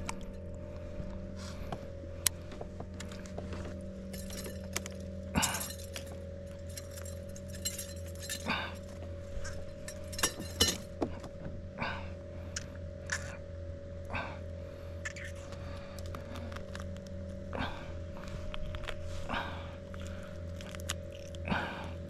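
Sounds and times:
low motor hum: 0.0 - 22.0
clinks and rattles: 4.1 - 11.0.

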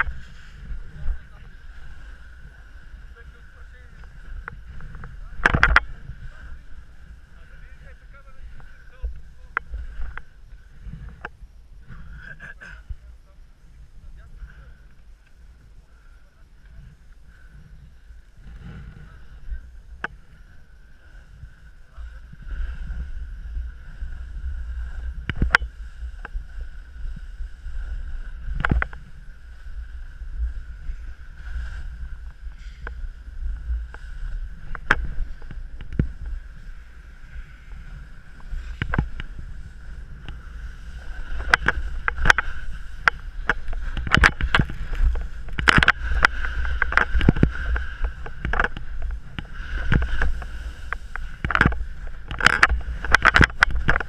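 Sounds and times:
skis scraping on snow: 0.0 - 11.2, 16.6 - 54.0
wind buffeting microphone: 0.0 - 54.0
sharp clicks and knocks: 4.4 - 5.9, 41.4 - 54.0.

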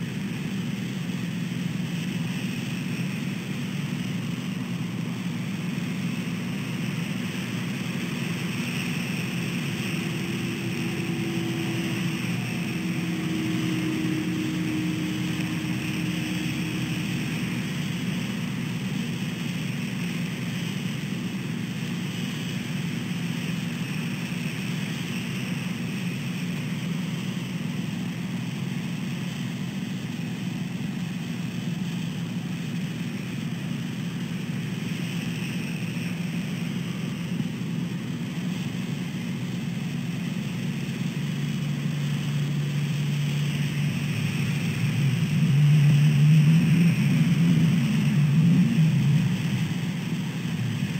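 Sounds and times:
passing engine drone: 0.0 - 26.6, 38.3 - 50.9
traffic on wet pavement: 0.8 - 27.3, 33.5 - 50.9.

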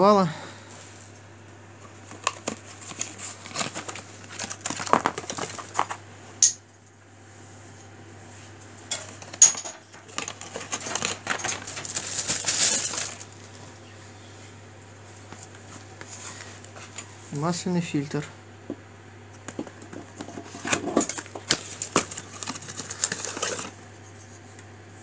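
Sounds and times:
plastic packaging rustling: 1.8 - 6.1, 9.0 - 13.8, 19.5 - 24.2
small metal parts clinking: 8.9 - 13.2.

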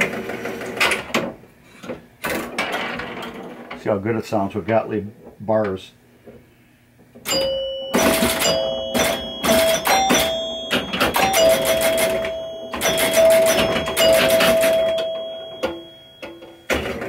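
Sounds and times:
pinball machine chimes ringing: 7.3 - 17.0.

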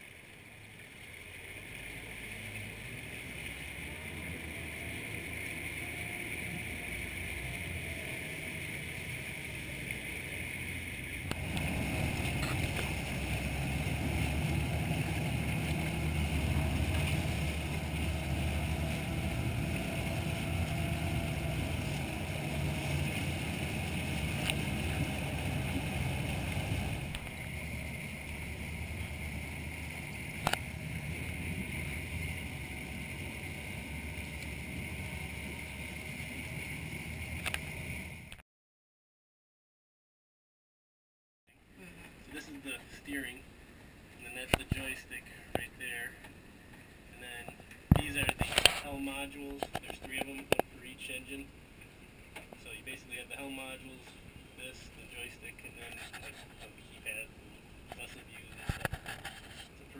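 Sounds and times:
water churning: 0.0 - 38.3
outboard engines running: 0.0 - 38.4, 41.6 - 59.9.

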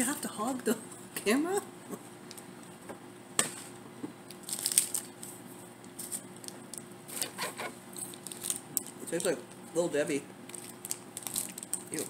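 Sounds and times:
foil wrapper crinkling: 4.3 - 9.3, 10.5 - 12.0.

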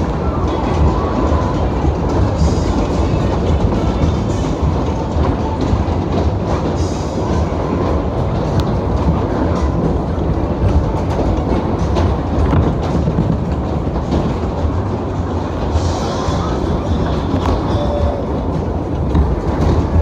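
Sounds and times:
light clacks: 0.0 - 16.0
fairground ride cars rumbling: 0.0 - 20.0.

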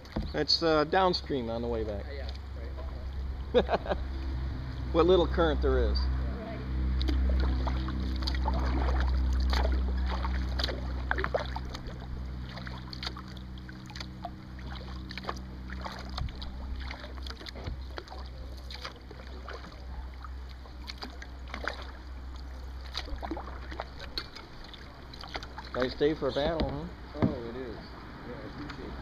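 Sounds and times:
low rumble: 0.0 - 29.0
paddle splashing water: 0.0 - 29.0.

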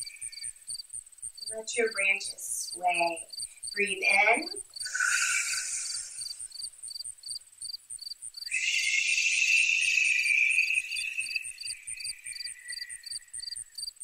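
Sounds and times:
crickets chirping: 0.0 - 14.0
breathy exhale: 4.8 - 6.5, 8.5 - 13.4.

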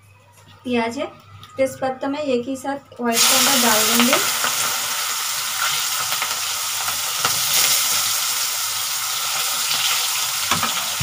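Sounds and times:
hot oil sizzling: 3.1 - 11.0.

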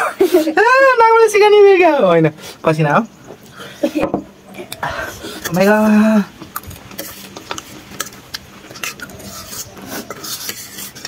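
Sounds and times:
slurping and chewing: 4.6 - 11.0
cutlery clinking on steel plates: 6.5 - 11.0.

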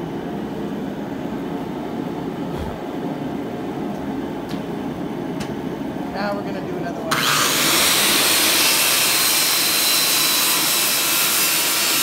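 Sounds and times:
saw blade cutting wood: 7.1 - 12.0.

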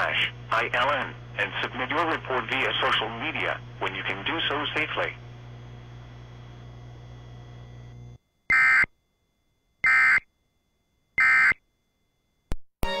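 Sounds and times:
radio feed hum: 0.0 - 8.9.

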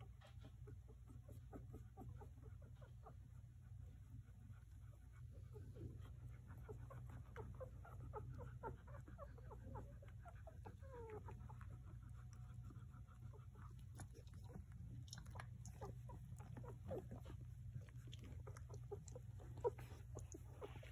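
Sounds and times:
puppies squeaking and whimpering: 5.4 - 12.2, 15.4 - 20.9.

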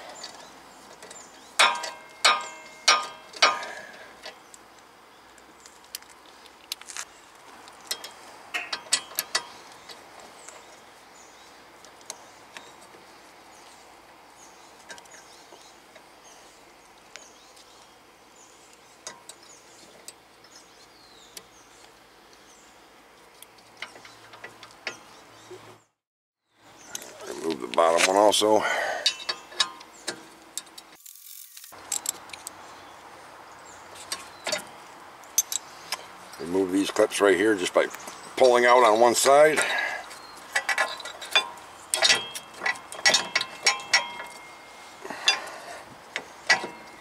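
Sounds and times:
hand tools clinking on metal: 1.0 - 4.4, 7.9 - 9.6, 38.3 - 45.8, 46.4 - 47.0.

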